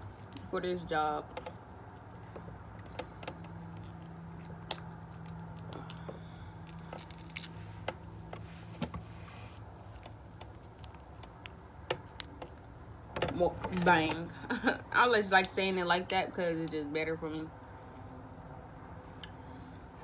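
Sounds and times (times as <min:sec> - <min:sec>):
low steady hum: 0:00.0 - 0:20.0
shellfish shell cracking: 0:02.9 - 0:08.8, 0:09.4 - 0:13.2.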